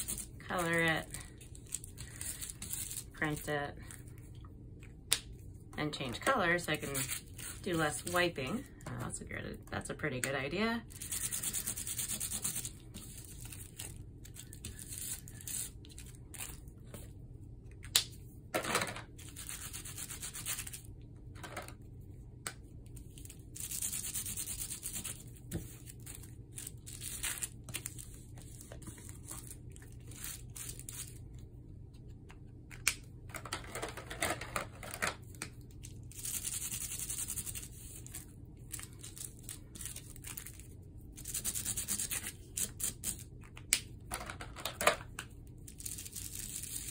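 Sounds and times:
bubble wrap rubbed on paper: 10.8 - 16.0, 19.2 - 20.9, 23.1 - 31.2, 36.0 - 43.2
markers scribbling on bubble wrap: 10.9 - 13.8, 19.3 - 20.8, 23.6 - 25.2, 36.1 - 38.1, 41.2 - 43.2.

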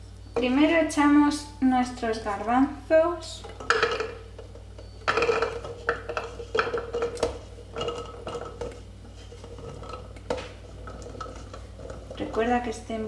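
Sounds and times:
spatula scraping a steel bowl: 4.8 - 12.7.

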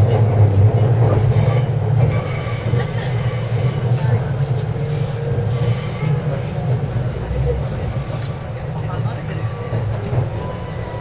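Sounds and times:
train wheels rumbling on track: 0.0 - 11.0
high-pitched wheel squeal: 2.2 - 3.9.

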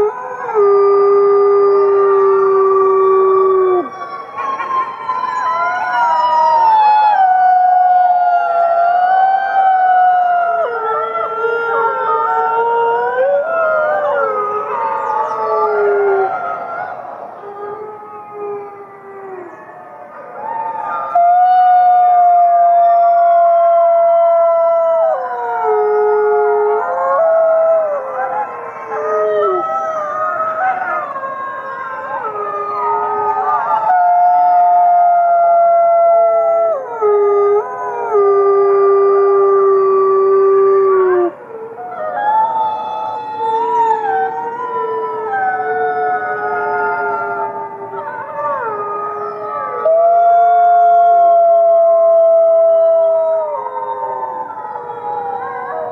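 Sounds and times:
close wolf howling: 0.0 - 55.9
wolves howling in chorus: 0.0 - 55.9.

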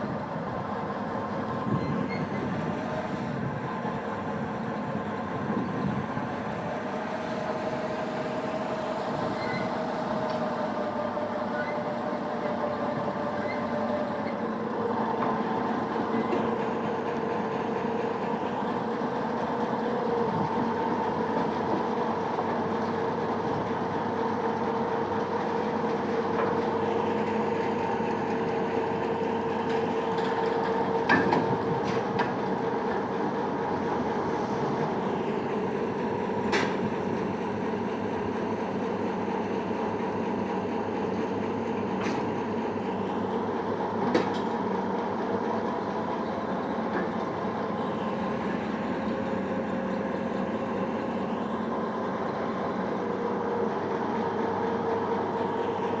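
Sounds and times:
turntable mechanical hum and rumble: 0.0 - 56.0.

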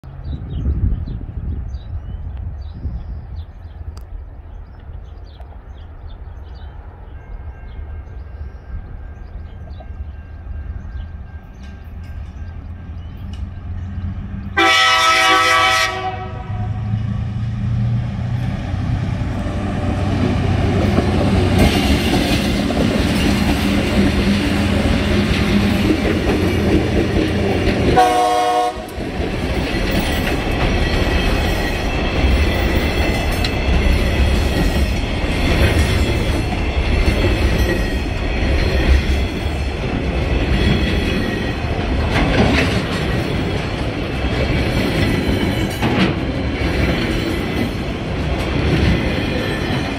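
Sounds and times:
locomotive horn blasts: 14.6 - 17.0, 27.9 - 29.0
wagons clacking over rail joints: 20.2 - 28.2, 28.9 - 49.9.

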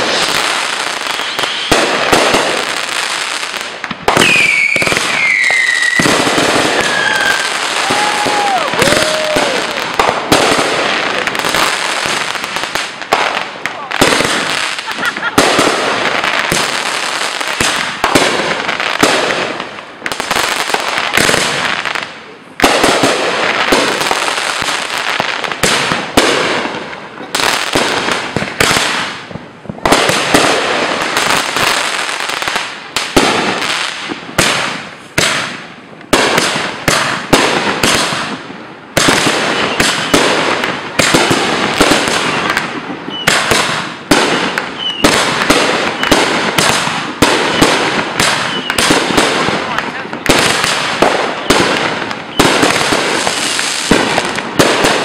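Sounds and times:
rising firework whistles: 0.0 - 2.4, 4.0 - 11.2, 39.2 - 40.3, 41.0 - 46.8, 47.4 - 49.0, 51.3 - 54.0
fireworks bursting and crackling: 0.0 - 55.0.

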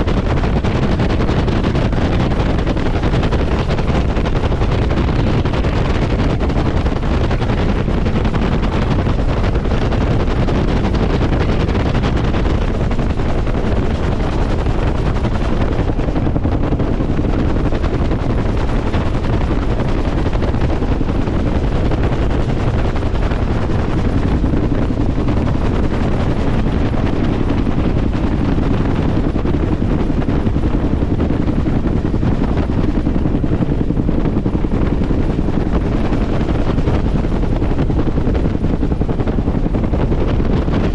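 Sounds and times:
helicopter turbine and rotor: 0.0 - 40.9
wind buffeting microphone: 0.0 - 40.9.

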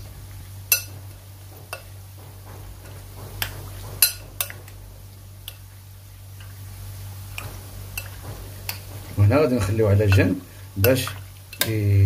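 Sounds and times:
metal spoon clinking glass bowl: 0.7 - 1.0.

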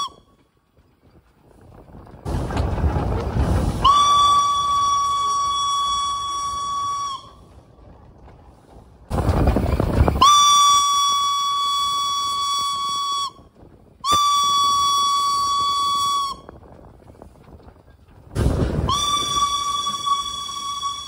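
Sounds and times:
rush of steam: 1.4 - 7.8, 18.3 - 21.0
steam locomotive whistle blasts: 3.8 - 7.4, 10.2 - 13.4, 14.0 - 16.5, 18.8 - 21.0.

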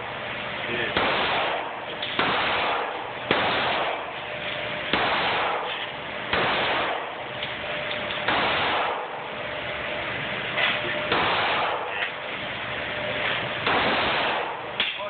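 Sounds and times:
handgun shots echoing indoors: 0.9 - 4.1, 4.8 - 7.2, 7.9 - 9.3, 11.1 - 12.0, 13.6 - 15.0.

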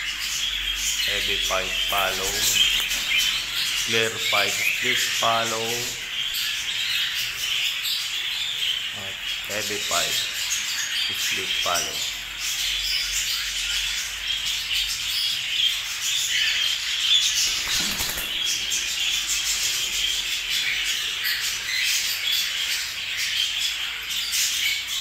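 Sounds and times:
cockatiels chirping and calling: 0.0 - 25.0
wing flapping: 17.4 - 19.4.

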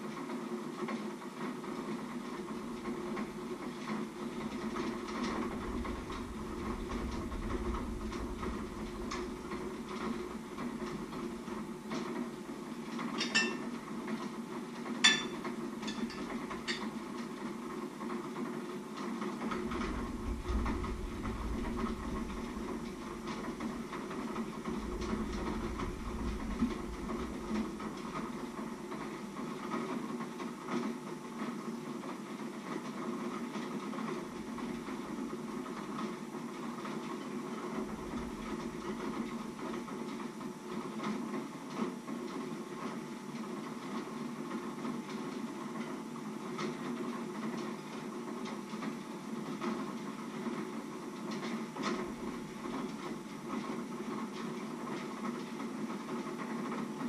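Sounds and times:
low kitchen hum: 4.4 - 14.2, 14.8 - 17.5, 19.5 - 29.0
spoon clinking on crockery: 13.2 - 13.7, 15.0 - 16.9.

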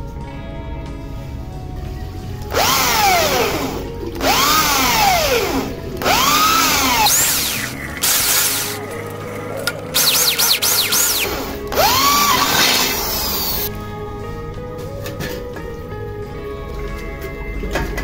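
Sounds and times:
electric drill boring into metal: 2.4 - 13.7.

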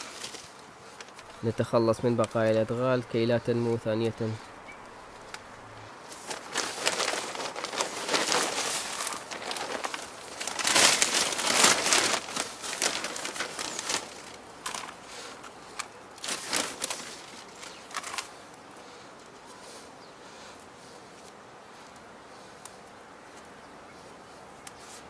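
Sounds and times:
plastic bag crinkling: 0.0 - 1.5, 6.1 - 18.5.

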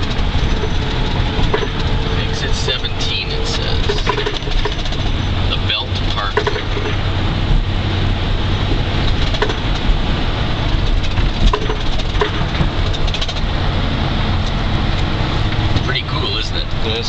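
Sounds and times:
road and engine rumble in car cabin: 0.0 - 17.0.

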